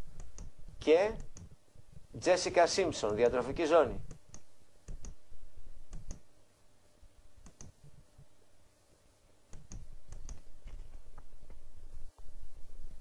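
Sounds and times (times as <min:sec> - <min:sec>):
computer mouse clicks: 0:00.2 - 0:00.6, 0:01.2 - 0:01.6, 0:04.0 - 0:05.2, 0:05.9 - 0:06.3, 0:07.4 - 0:08.0, 0:09.5 - 0:11.3.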